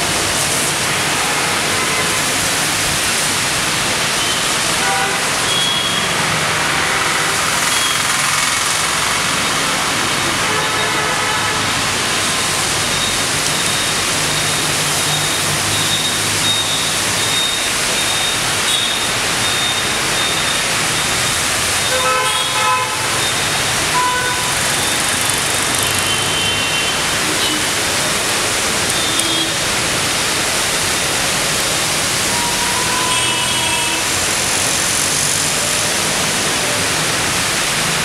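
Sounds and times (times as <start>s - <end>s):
rain hissing on wet road: 0.0s - 38.0s
vehicle horns tooting: 4.2s - 8.2s, 10.3s - 11.8s, 21.8s - 27.9s, 28.9s - 29.7s, 32.3s - 34.2s
vehicles swishing through water: 5.3s - 38.0s.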